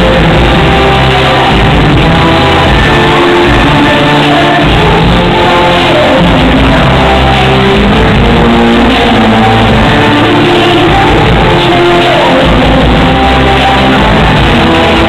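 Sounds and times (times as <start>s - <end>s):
loud rock music with guitar: 0.0s - 15.0s.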